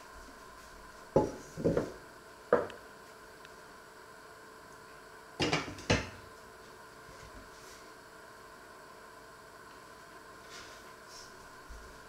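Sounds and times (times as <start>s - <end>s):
frying pan knocking on wooden table: 1.2s - 2.7s.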